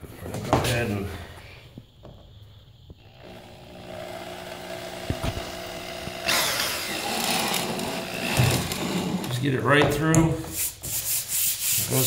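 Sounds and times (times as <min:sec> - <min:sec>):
electric drill boring into flooring: 0:03.0 - 0:09.3.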